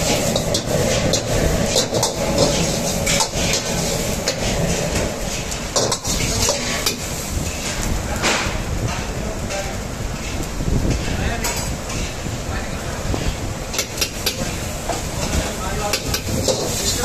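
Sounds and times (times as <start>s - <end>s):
steel ladle scraping wok: 0.0s - 7.9s, 10.2s - 12.3s
frying sizzle: 0.0s - 17.0s.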